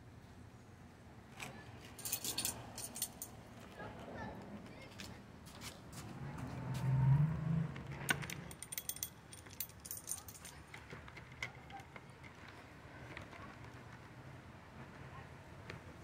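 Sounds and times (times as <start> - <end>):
light metallic clinking: 2.0 - 3.4, 8.1 - 11.6.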